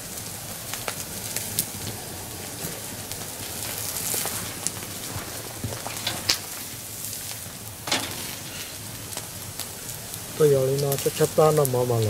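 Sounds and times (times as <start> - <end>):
burning wood crackling: 0.0 - 12.0
meat sizzling on a grill: 0.0 - 12.0.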